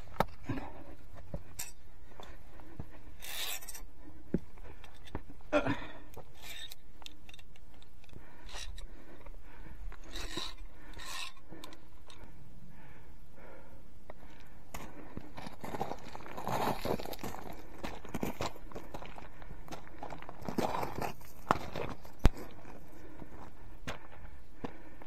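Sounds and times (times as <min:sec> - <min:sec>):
scraping and rubbing against rock: 0:01.3 - 0:03.9, 0:06.2 - 0:07.4, 0:10.0 - 0:12.2.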